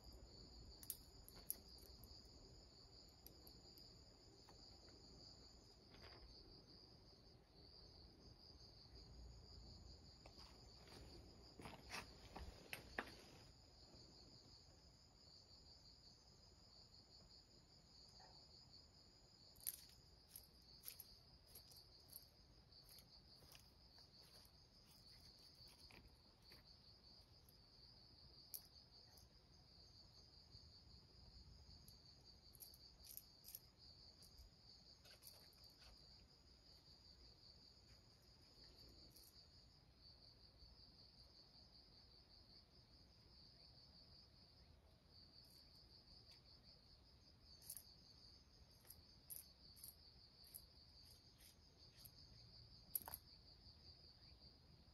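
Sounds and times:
insects trilling: 8.7 - 40.4, 43.3 - 54.9.

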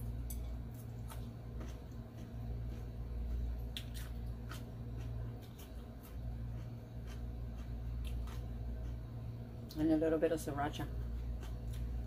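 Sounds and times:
steady low hum: 0.0 - 12.0
salad crunching: 0.1 - 9.1.

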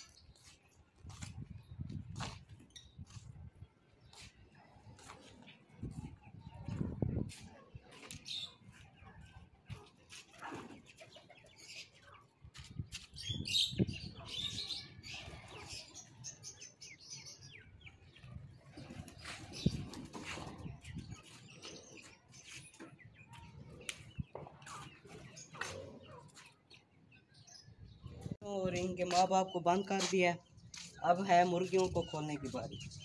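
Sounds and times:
birds fluttering and wing flaps: 18.5 - 22.8
footsteps scuffing on concrete: 29.0 - 31.1.

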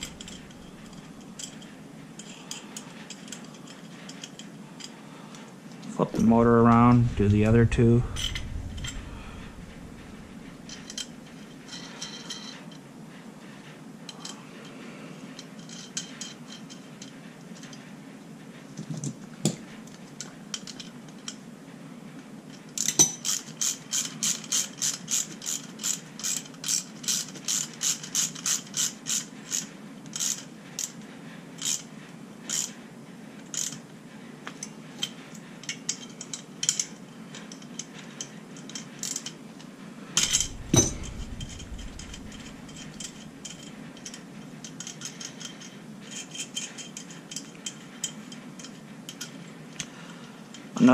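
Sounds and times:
ratcheting wrench clicking: 0.0 - 1.6, 40.2 - 47.8.

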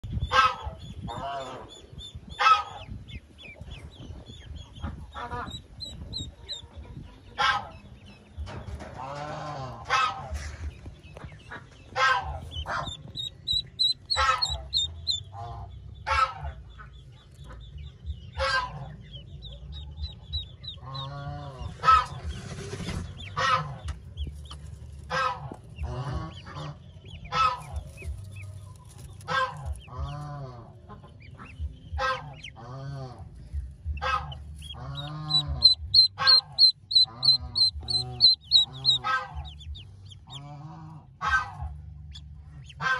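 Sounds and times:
ducklings peeping: 0.0 - 42.9
adult fowl honking: 0.2 - 1.7, 9.0 - 10.5, 11.2 - 16.9, 18.4 - 19.0, 20.7 - 22.4, 23.2 - 24.0, 25.0 - 27.9, 29.2 - 33.3, 34.0 - 42.9.

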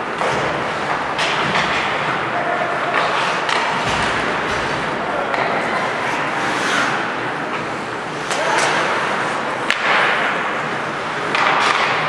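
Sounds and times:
crowd noise: 0.0 - 12.0
hockey stick hitting puck: 0.1 - 2.2, 2.9 - 12.0
skates hissing on ice: 5.9 - 7.1.

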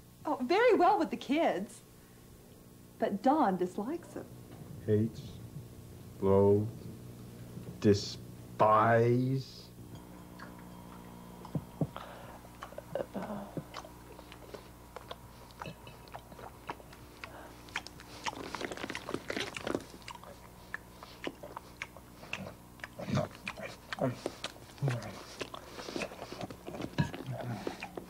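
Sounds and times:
steady low hum: 0.0 - 28.0
chewing and crunching: 10.2 - 28.0.

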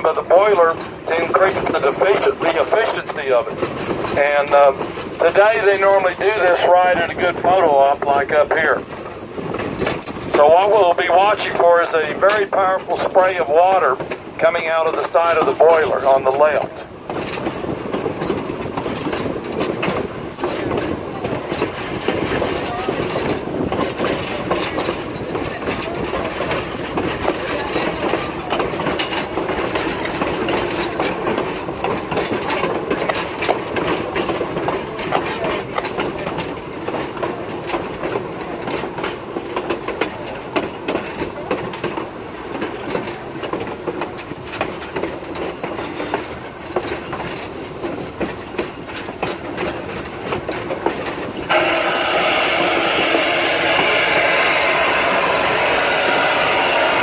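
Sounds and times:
train wheels clicking on rail joints: 0.0 - 57.0
loud steam hiss: 51.4 - 57.0.

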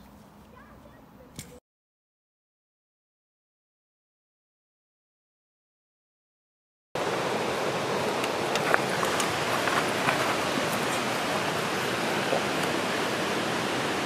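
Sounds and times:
steady rushing outdoor noise: 7.0 - 14.0.

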